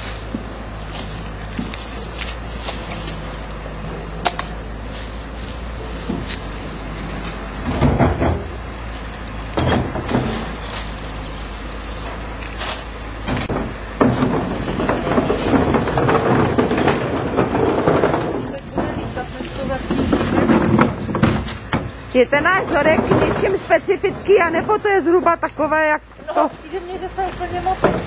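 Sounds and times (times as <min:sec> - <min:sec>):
plastic bags rustling: 0:00.0 - 0:09.5, 0:10.1 - 0:25.2
items clunking against wire baskets: 0:00.0 - 0:28.0.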